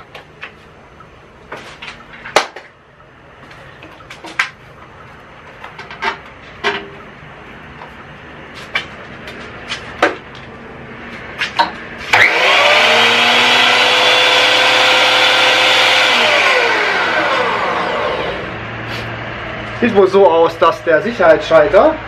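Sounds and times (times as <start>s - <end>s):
planer motor whining: 12.0s - 18.7s.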